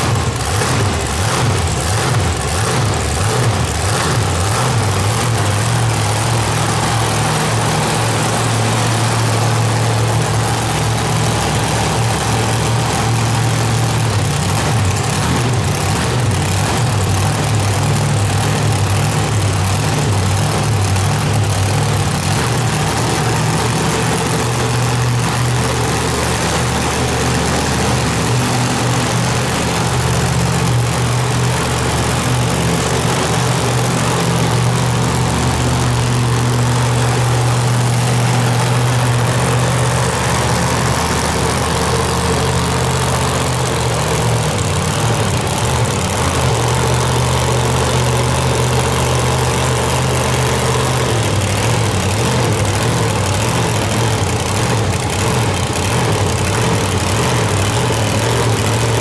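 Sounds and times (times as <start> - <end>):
truck engine idling: 0.0 - 59.0.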